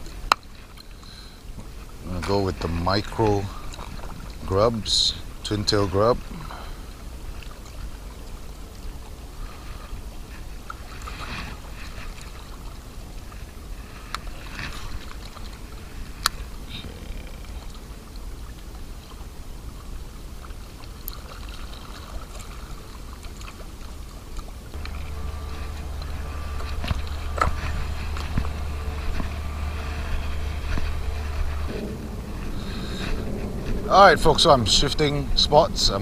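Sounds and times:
water lapping against bank: 0:00.0 - 0:36.0
wind rumble on microphone: 0:23.8 - 0:36.0.

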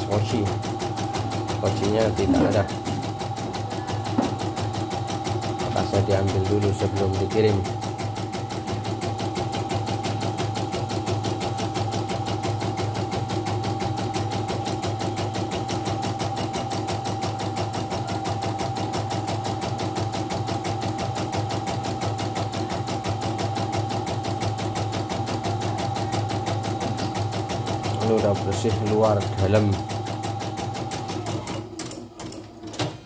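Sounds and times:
motor hum: 0:00.0 - 0:12.5.

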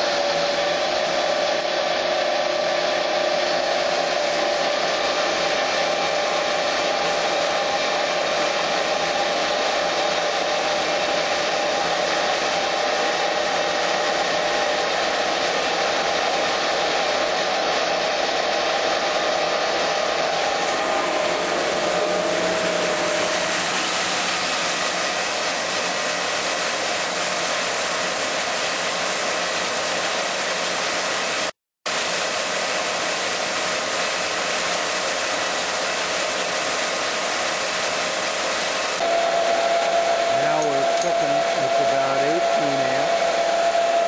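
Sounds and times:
water jets rushing: 0:20.4 - 0:39.0.

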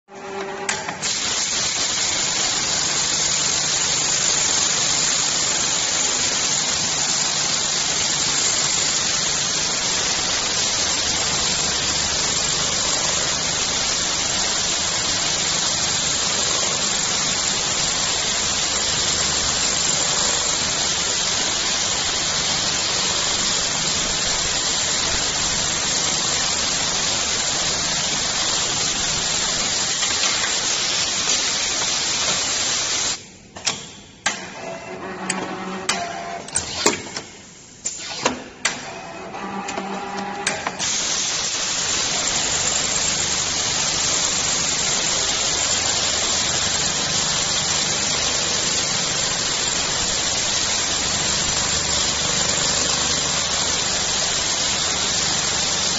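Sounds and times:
sewing machine running: 0:01.0 - 0:30.0, 0:41.0 - 0:55.9.

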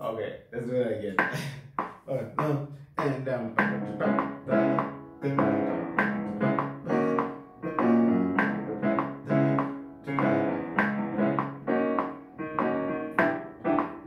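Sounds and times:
piano notes in steady pulse: 0:03.4 - 0:14.0.

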